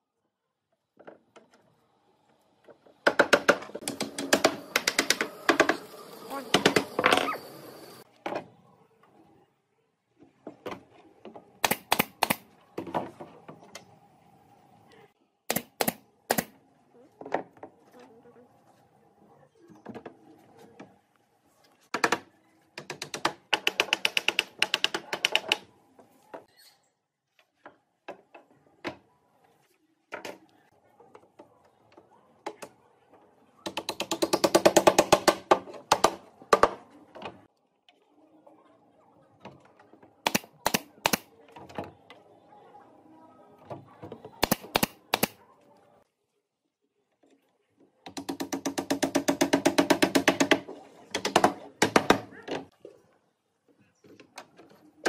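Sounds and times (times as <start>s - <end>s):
rapid clicking and tapping on wood: 22.8s - 25.6s.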